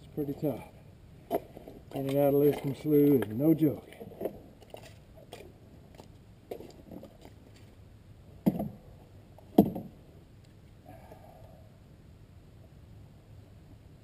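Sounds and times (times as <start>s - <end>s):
boots squelching in mud: 1.3s - 7.8s.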